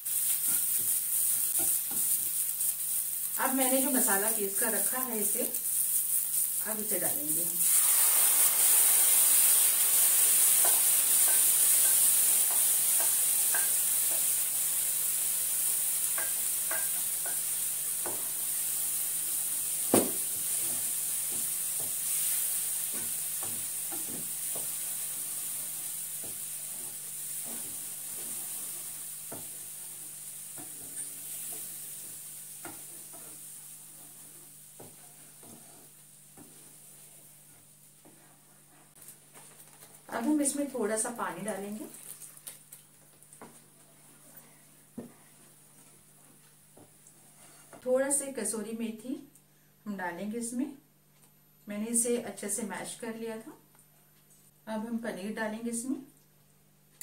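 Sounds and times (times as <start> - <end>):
paste sizzling in a pan: 0.0 - 39.9
spoon scraping and tapping pan: 10.6 - 14.3, 16.1 - 18.3.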